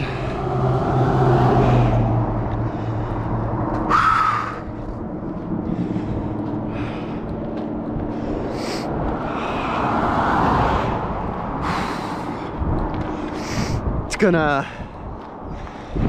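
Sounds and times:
vehicle rushing past: 0.0 - 14.1
vehicle engine and tyre noise: 0.0 - 16.0.

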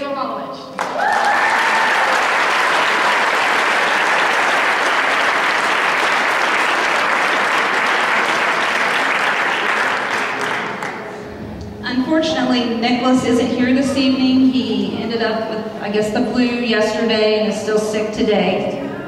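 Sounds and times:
audience applauding: 0.8 - 11.2.

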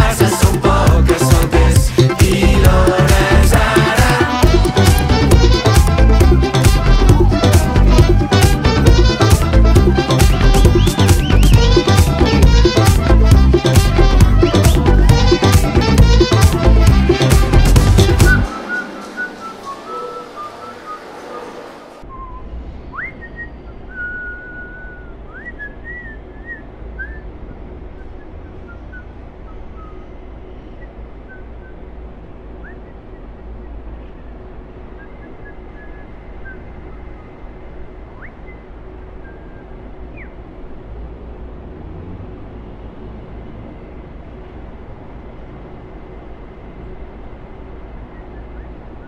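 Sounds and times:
song music: 0.0 - 22.1
low rumbling background noise: 0.0 - 49.0
steady low hum: 0.0 - 49.0
person whistling: 3.0 - 12.1, 17.8 - 27.3.

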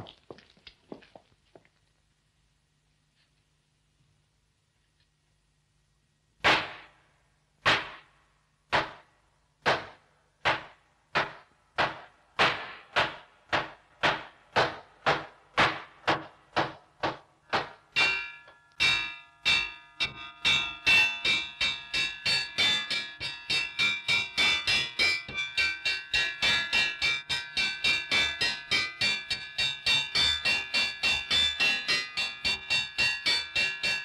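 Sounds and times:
mallet striking wooden board: 6.4 - 6.9, 7.6 - 8.1, 8.7 - 34.0
ringing metal tones: 17.9 - 34.0.

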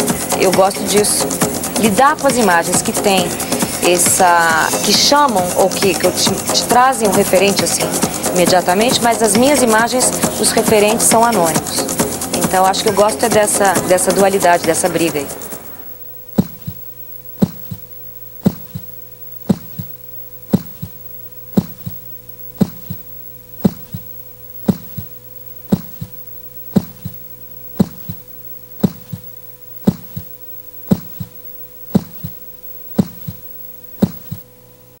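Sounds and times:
low electronic hum: 0.0 - 35.0
heartbeat-like double thumps: 16.2 - 34.4.

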